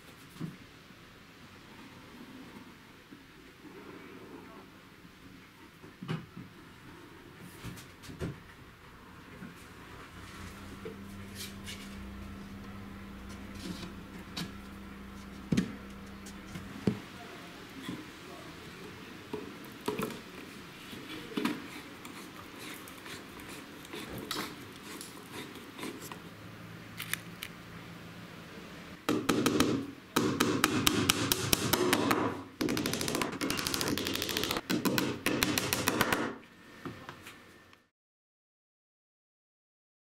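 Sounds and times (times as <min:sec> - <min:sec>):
hammer tapping nail into plywood: 0:29.1 - 0:36.4.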